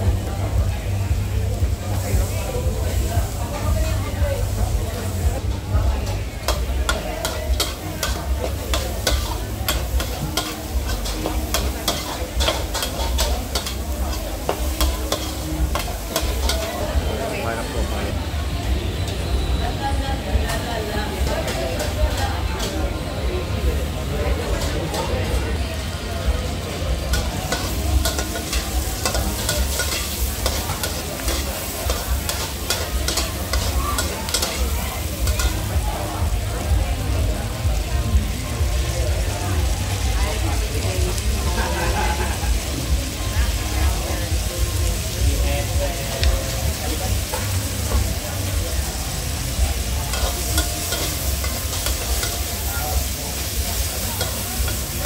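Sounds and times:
food sizzling in wok: 0.0 - 55.0
metal spatula clanking on wok: 6.4 - 16.8, 27.0 - 35.7, 50.1 - 55.0.

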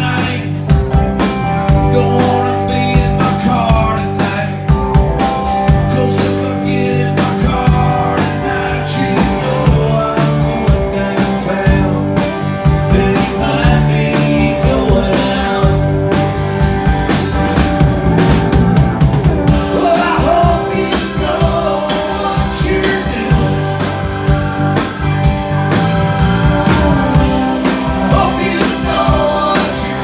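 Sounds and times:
lead vocal singing: 0.0 - 0.7, 1.8 - 4.7, 5.7 - 16.0, 19.5 - 24.0, 26.7 - 30.0
drum kit beat: 0.0 - 30.0
electric guitar: 0.0 - 30.0
keyboard: 0.0 - 30.0.

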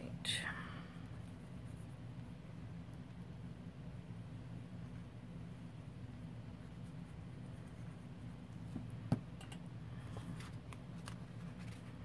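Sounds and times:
steady low hum: 0.0 - 12.0
paper rustling: 10.1 - 12.0.

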